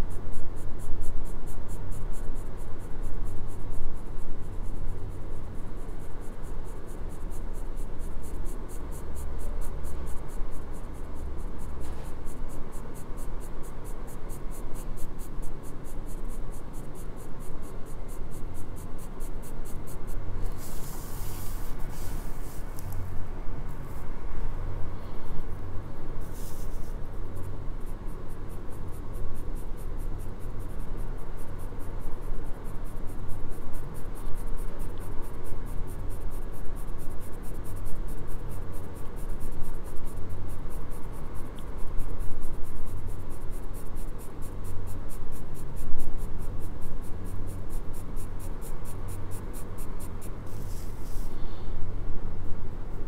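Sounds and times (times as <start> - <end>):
pencil scratching on paper: 0.0 - 23.2, 26.2 - 51.3.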